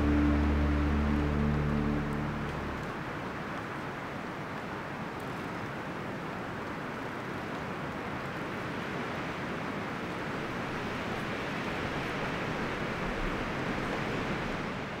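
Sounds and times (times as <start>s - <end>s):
steady rushing noise: 0.0s - 4.9s.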